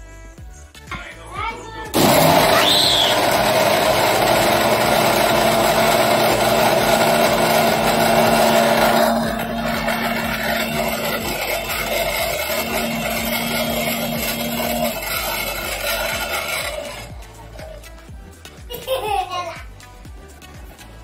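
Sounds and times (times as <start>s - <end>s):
mixer grinder grinding: 2.0s - 18.0s.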